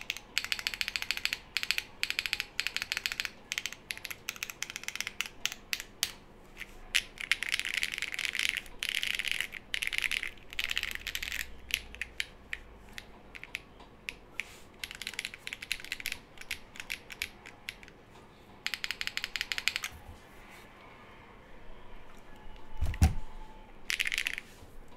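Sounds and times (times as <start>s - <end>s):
mechanical keyboard typing: 0.0s - 6.2s, 6.9s - 18.0s, 18.6s - 19.9s, 23.9s - 24.4s.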